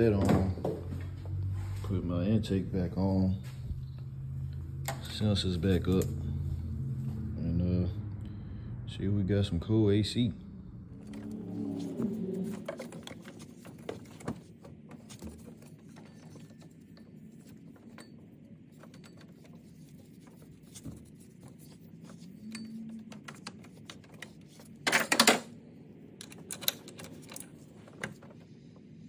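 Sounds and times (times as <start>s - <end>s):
metal tools clinking on engine parts: 12.4s - 25.5s, 26.2s - 28.3s.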